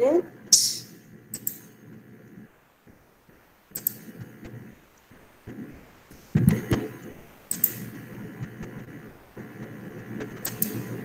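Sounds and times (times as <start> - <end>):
low background noise: 0.0 - 11.0
faint mouse and keyboard clicks: 1.3 - 1.7, 3.7 - 5.6, 7.5 - 8.7, 10.2 - 11.0.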